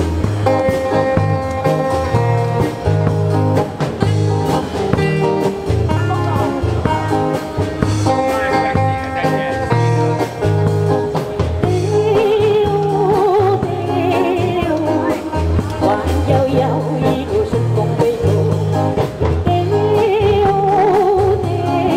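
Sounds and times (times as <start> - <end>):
electric guitar melody: 0.0 - 21.9
live band playing: 0.0 - 21.9
woman singing: 11.6 - 21.9.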